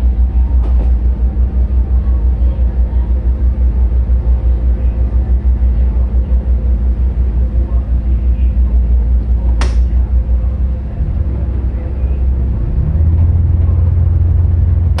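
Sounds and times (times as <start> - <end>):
ship diesel engine rumbling: 0.0 - 15.0
sharp click: 9.6 - 9.9.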